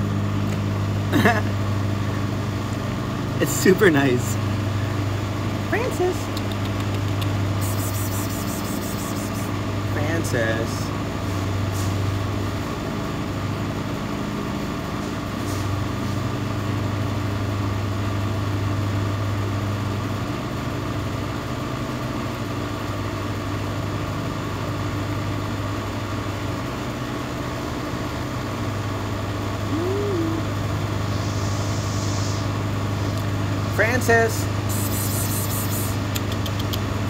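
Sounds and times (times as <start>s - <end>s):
motor humming: 6.5s - 9.6s, 34.6s - 36.5s.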